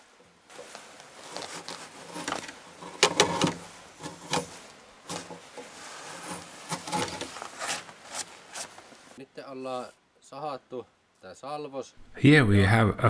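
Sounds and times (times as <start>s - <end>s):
chisel scraping wood: 0.6s - 9.2s.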